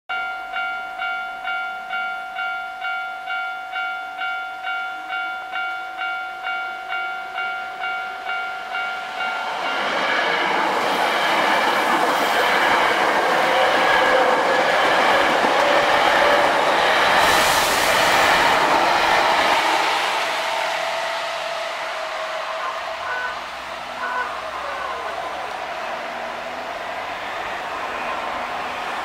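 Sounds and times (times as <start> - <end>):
level-crossing warning bell: 0.1 - 17.2, 21.2 - 26.5
electric train passing: 0.5 - 29.0.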